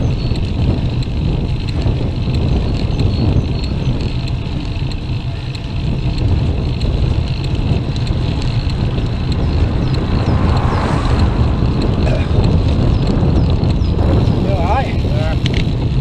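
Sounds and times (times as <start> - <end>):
wind buffeting microphone: 0.0 - 16.0
car passing: 7.9 - 14.0.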